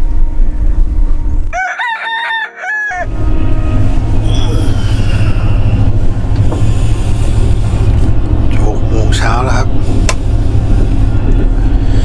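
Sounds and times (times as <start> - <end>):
rooster crowing: 1.5 - 6.0
train carriage rumble: 3.1 - 12.0.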